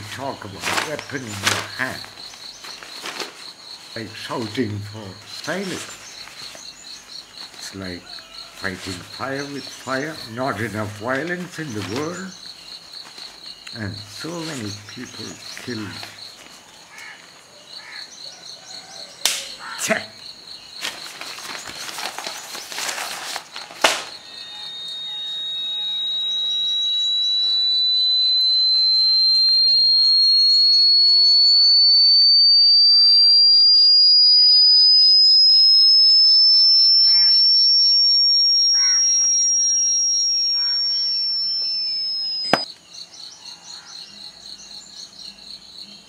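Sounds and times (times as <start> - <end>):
crickets chirping: 0.0 - 46.0
newspaper rustling: 0.6 - 1.6, 2.5 - 3.5, 20.8 - 24.2
high whistling tone rising: 22.7 - 42.7.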